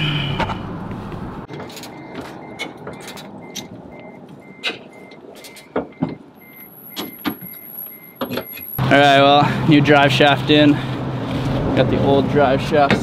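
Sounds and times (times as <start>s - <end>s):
repeating electronic beep: 1.9s - 8.8s.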